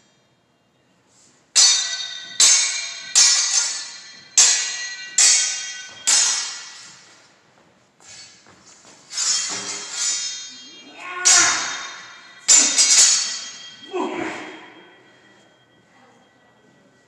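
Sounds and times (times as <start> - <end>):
swords clashing: 1.6 - 7.1, 9.1 - 14.8.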